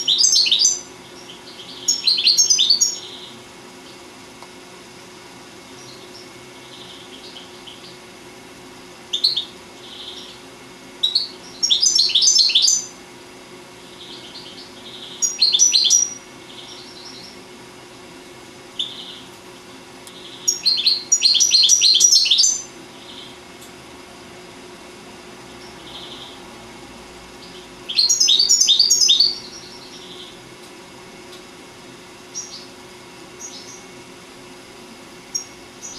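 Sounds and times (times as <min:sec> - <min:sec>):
goldfinch twittering song: 0:00.0 - 0:04.0, 0:09.1 - 0:10.4, 0:11.0 - 0:12.9, 0:13.9 - 0:17.4, 0:20.2 - 0:23.3, 0:27.4 - 0:30.4.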